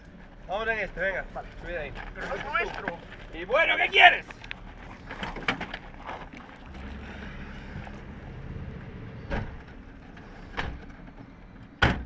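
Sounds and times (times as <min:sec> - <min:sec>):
low steady rumble: 0:00.0 - 0:11.9
dull thumps in van: 0:05.0 - 0:12.0
van door slamming: 0:06.7 - 0:12.0.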